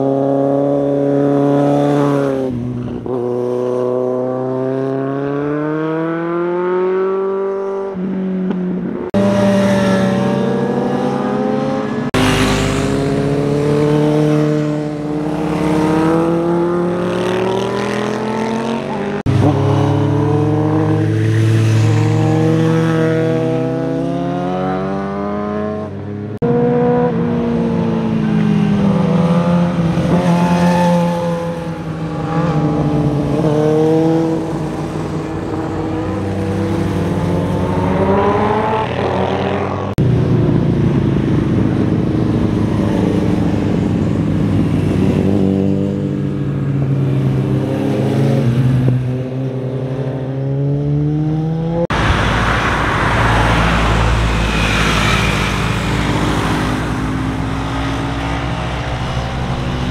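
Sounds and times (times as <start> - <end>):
motorcycle engines revving: 0.0 - 59.9
car passing rumble: 51.6 - 59.9.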